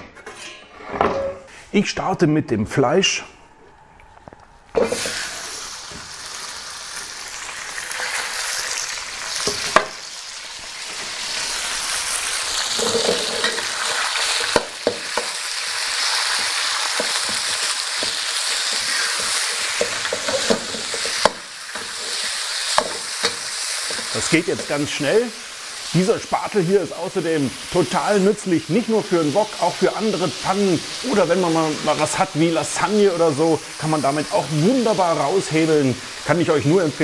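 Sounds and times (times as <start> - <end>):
meat sizzling in a wok: 4.8 - 37.0
spatula scraping a wok: 12.7 - 14.6.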